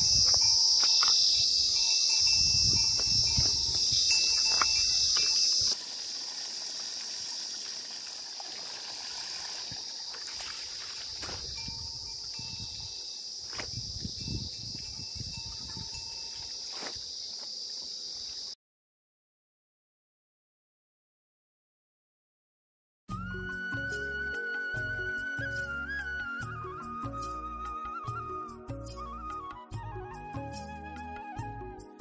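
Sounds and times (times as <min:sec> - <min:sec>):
insect chorus: 0:00.0 - 0:18.6
water splashing and dripping: 0:03.4 - 0:14.1.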